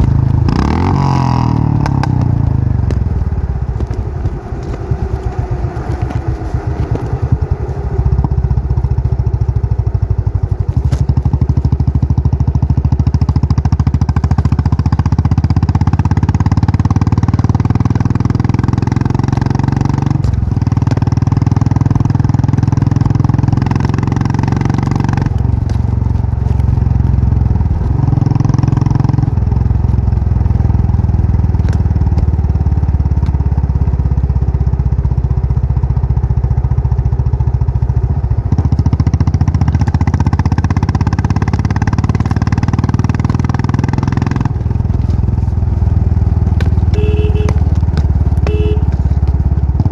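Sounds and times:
motorcycle engine running: 0.0s - 49.9s.

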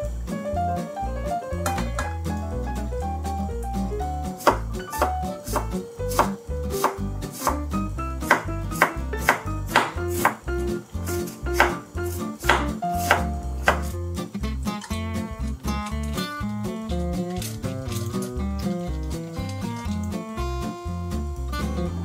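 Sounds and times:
light background music: 0.0s - 22.0s
knife chopping on wooden board: 4.4s - 10.5s, 11.1s - 14.0s.

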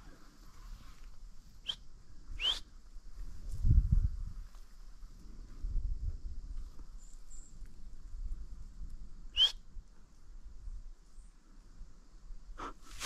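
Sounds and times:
short sharp whistle: 1.6s - 1.8s, 2.4s - 2.7s, 9.3s - 9.6s
wind rumble: 2.0s - 7.0s
rustling noise: 12.8s - 13.0s.

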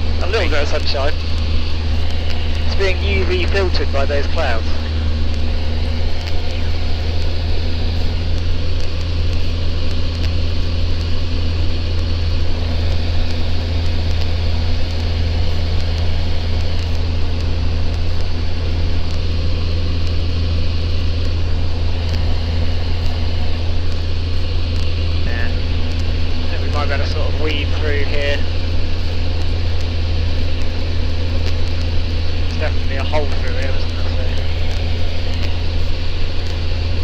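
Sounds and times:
aircraft engine and propeller drone: 0.0s - 37.0s
rush of air noise: 0.0s - 37.0s.

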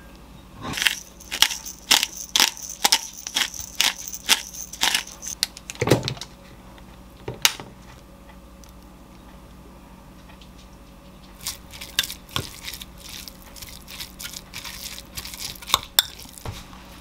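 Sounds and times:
pepper grinder crunching clicks: 11.3s - 16.4s.

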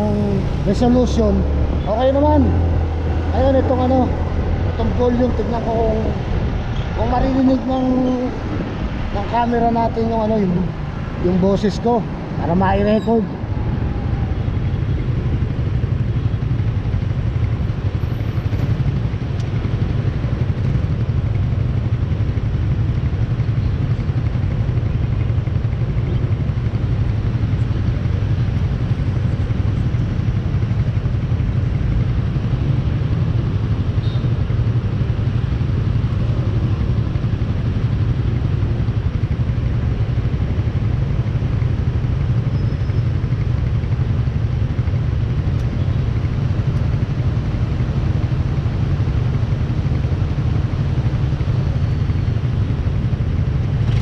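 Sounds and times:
scooter engines idling: 0.0s - 6.4s, 14.1s - 33.2s, 33.8s - 54.0s.

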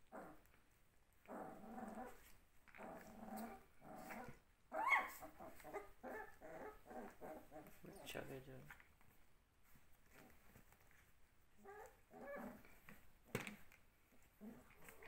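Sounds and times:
puppies growling: 0.0s - 0.6s, 1.2s - 8.1s, 11.6s - 13.0s, 14.1s - 15.0s
puppy yelping: 3.0s - 7.8s, 11.6s - 12.7s.

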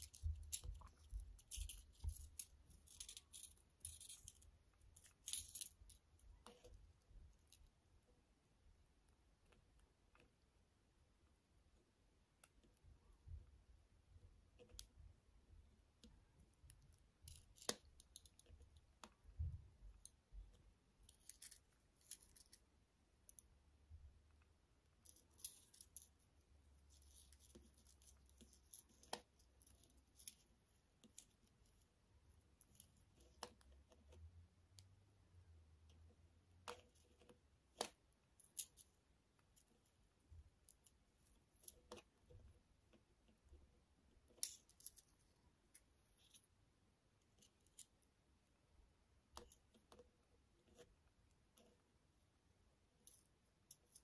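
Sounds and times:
beads clicking on wire: 0.0s - 6.8s, 24.9s - 26.2s, 36.7s - 39.7s.

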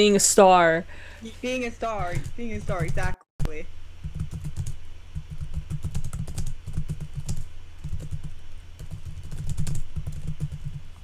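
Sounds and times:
typing on computer keyboard: 4.1s - 10.8s.

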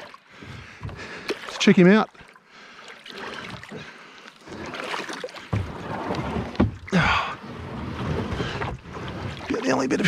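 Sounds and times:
water sloshing and splashing: 0.0s - 10.0s.

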